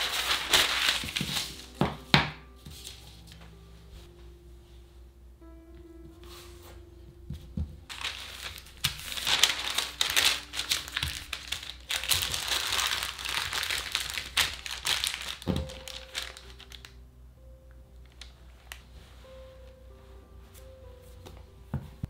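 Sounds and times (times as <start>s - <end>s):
baking paper crinkling: 0.0s - 2.1s, 7.9s - 17.0s.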